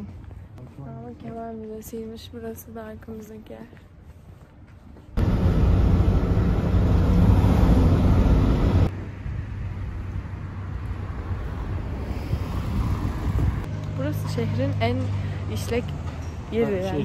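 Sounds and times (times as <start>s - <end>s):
street background hum at night: 0.0s - 17.0s
car road noise and engine hum: 5.2s - 16.2s.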